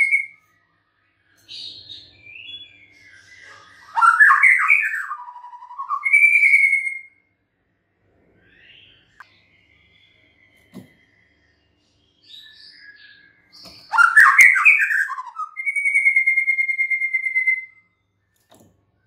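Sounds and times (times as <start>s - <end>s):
bird singing: 0.0s - 7.3s, 8.4s - 19.0s
bird trilling: 1.6s - 7.1s, 13.6s - 17.8s.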